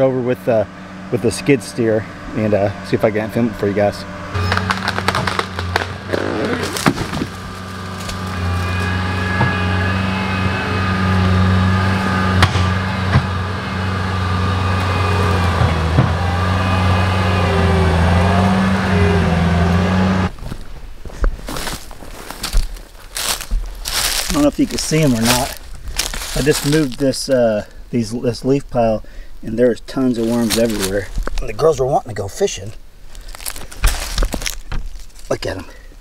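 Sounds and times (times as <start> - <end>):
diesel engine running hard: 0.0 - 20.4, 23.1 - 27.1, 29.0 - 31.3
tree trunk cracking and snapping: 4.4 - 9.5, 21.5 - 27.0, 30.2 - 31.5, 33.0 - 35.4.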